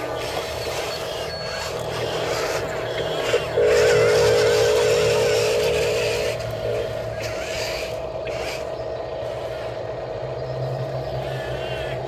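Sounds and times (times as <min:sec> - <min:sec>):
low hum: 0:00.0 - 0:12.0
steady whine: 0:00.0 - 0:12.0
toy excavator motors whirring: 0:00.0 - 0:12.0.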